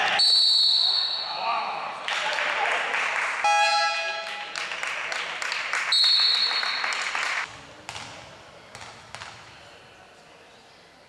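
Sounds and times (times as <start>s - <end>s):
referee's whistle: 0.0s - 1.4s, 3.4s - 4.2s, 5.9s - 7.0s
crowd cheering and clapping: 2.0s - 7.5s
ball bouncing: 7.9s - 9.6s.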